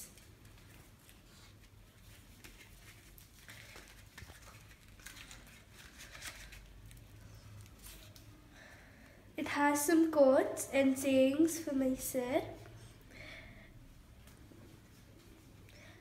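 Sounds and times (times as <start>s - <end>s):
paper and card rustling: 0.0s - 8.4s.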